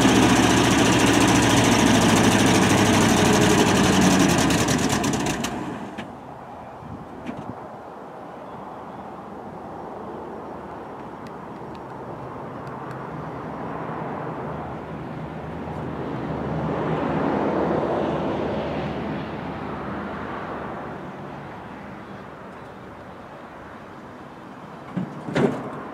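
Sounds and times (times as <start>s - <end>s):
truck engine running: 0.0s - 6.1s.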